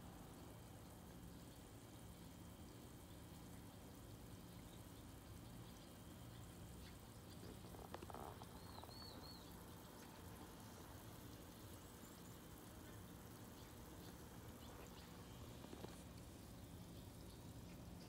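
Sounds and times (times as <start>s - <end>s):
low steady hum: 0.0s - 18.0s
faint high chirp: 8.5s - 9.7s.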